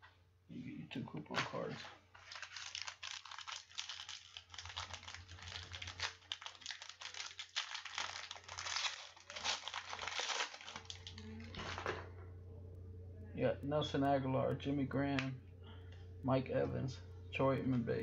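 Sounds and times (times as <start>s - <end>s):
cards rustling: 1.3s - 12.0s
wrapper crinkling and tearing: 1.7s - 12.0s.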